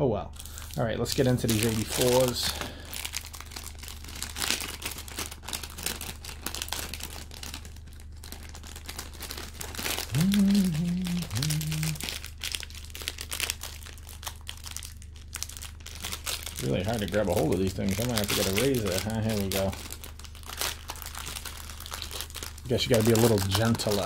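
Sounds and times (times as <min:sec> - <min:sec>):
cellophane wrapper crinkling: 0:00.4 - 0:24.0
man humming: 0:10.1 - 0:12.1.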